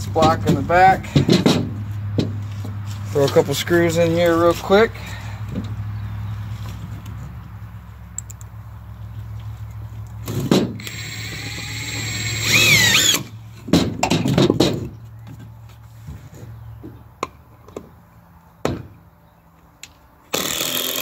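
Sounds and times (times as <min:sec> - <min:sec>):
cordless drill motor whining: 0:10.8 - 0:13.3.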